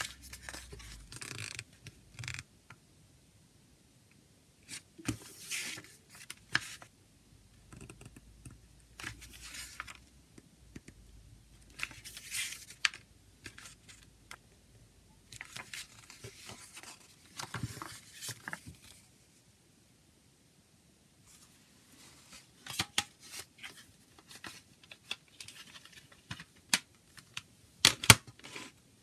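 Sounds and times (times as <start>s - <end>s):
paper pages rustling: 0.0s - 1.6s, 11.7s - 14.0s, 15.3s - 19.1s.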